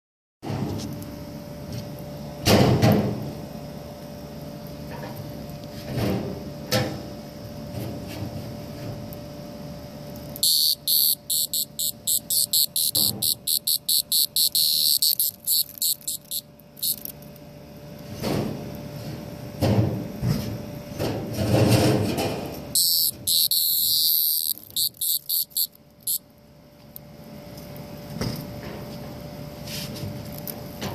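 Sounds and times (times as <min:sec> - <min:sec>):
cicada buzzing squawks: 0:10.4 - 0:17.2, 0:22.7 - 0:26.2.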